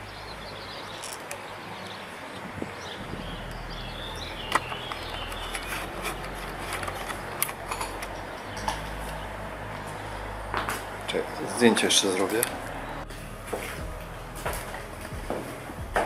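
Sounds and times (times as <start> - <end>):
bird chirping: 0.0 - 9.5
outdoor background noise: 0.0 - 16.0.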